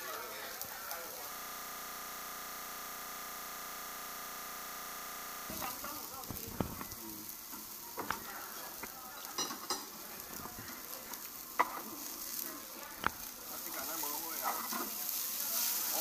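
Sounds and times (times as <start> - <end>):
meat sizzling on grill: 0.0 - 16.0
fat flaring in fire: 1.4 - 7.3.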